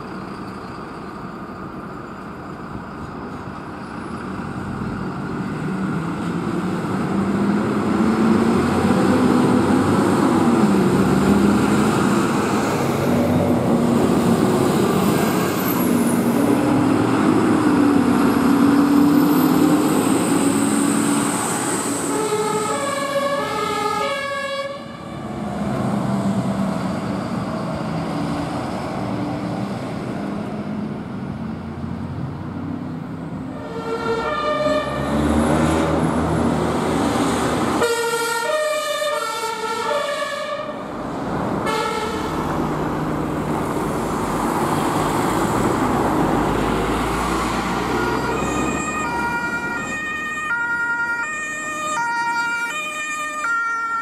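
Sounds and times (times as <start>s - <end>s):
passing vehicles road noise: 0.0s - 54.0s
two-tone emergency sirens: 15.5s - 25.5s, 33.5s - 35.8s, 37.8s - 40.9s, 41.6s - 42.4s, 47.4s - 54.0s.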